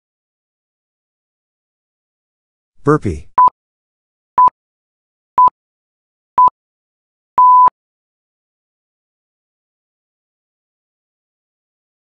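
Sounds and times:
longer electronic beep: 7.4 - 7.7
short electronic beeps: 7.4 - 7.7.

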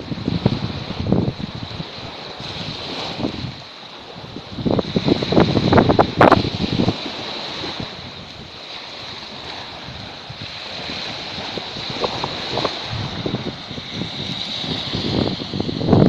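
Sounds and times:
small waves washing on sand: 0.0 - 16.0
wind buffeting microphone: 0.0 - 16.0.

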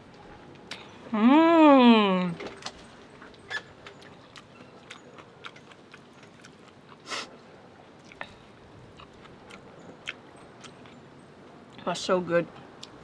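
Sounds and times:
person chewing noodles: 4.1 - 7.3, 8.0 - 11.0.

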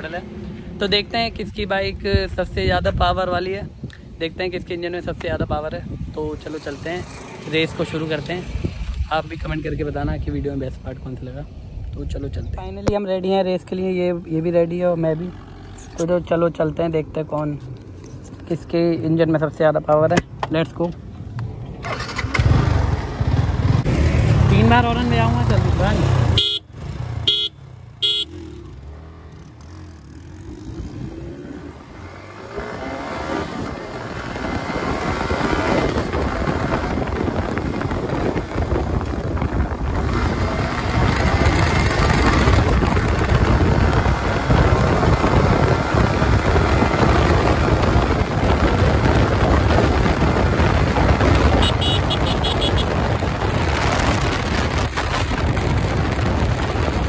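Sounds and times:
wind noise: 0.0 - 13.8, 20.1 - 57.0
motorcycle engine accelerating: 21.4 - 57.0
motorcycle horn toots: 26.4 - 28.6, 51.5 - 53.0.

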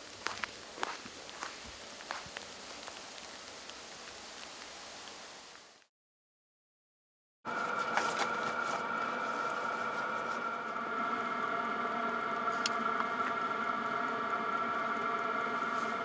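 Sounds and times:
steady mechanical hum: 0.0 - 4.1, 7.5 - 16.0.

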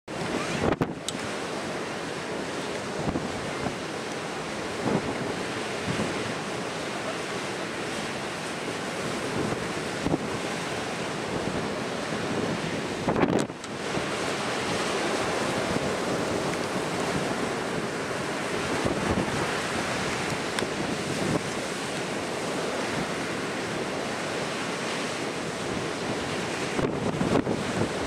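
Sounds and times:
ocean surf breaking: 0.1 - 28.0
wind buffeting microphone: 0.1 - 28.0.

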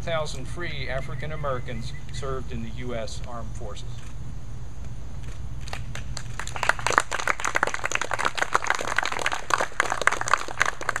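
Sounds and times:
people applauding: 5.6 - 11.0.

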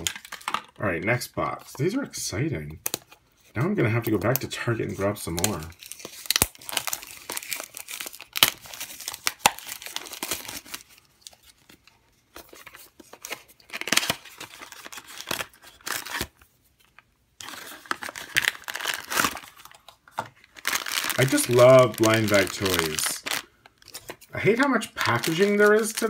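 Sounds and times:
plastic packaging crinkling: 0.0 - 0.8, 3.9 - 26.0
cardboard tearing: 13.2 - 16.3, 20.6 - 24.0.

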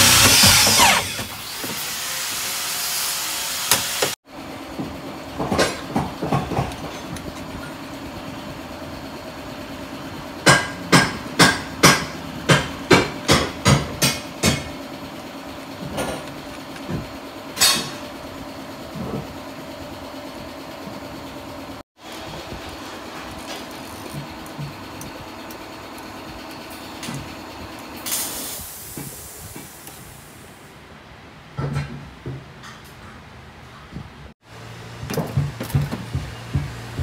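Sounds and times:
power tool running: 0.0 - 4.2.

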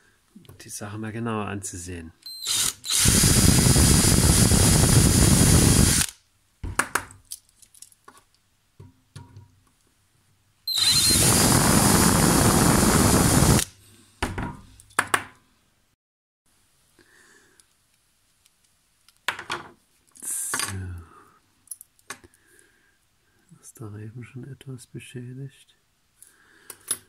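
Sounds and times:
cordless drill drilling metal: 2.3 - 6.2, 10.7 - 13.7.

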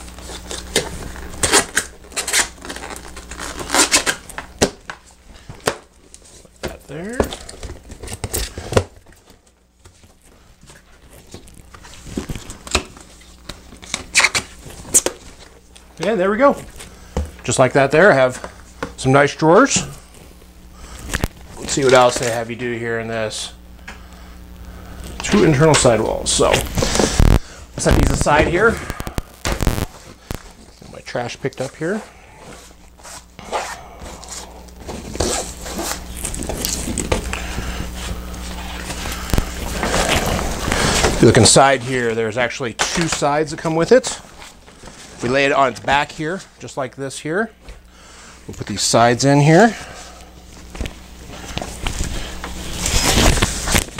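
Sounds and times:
paper strips rustling and scraping: 25.3 - 41.6, 51.4 - 53.9.

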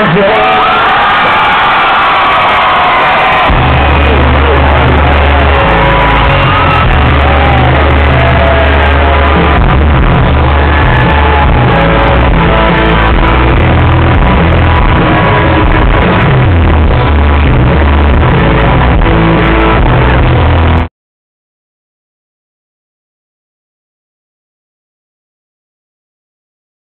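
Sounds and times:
crowd shouting along: 0.0 - 19.6
live country band playing: 3.3 - 20.9.

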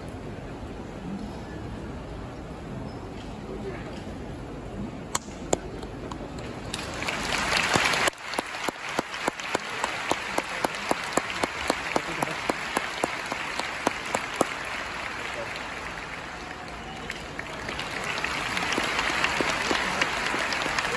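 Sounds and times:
sharp rhythmic claps: 5.2 - 20.9
audience applauding: 5.5 - 20.9.

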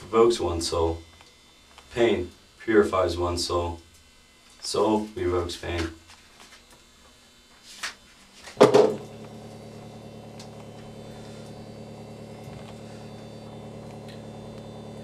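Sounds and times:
steady electrical hum: 0.0 - 15.0
sharp knock: 8.6 - 9.0.

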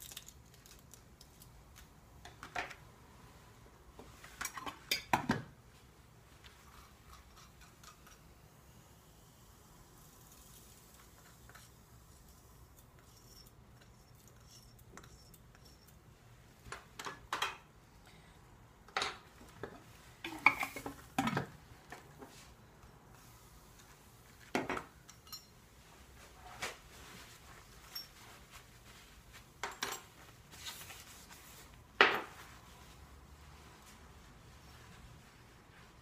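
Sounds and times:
mortar and lab tools clinking: 25.0 - 25.6.

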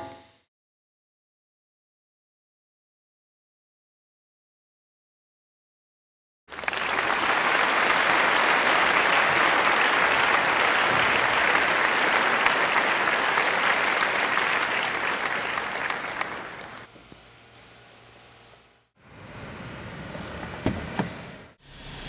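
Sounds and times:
audience applause: 6.5 - 16.9.

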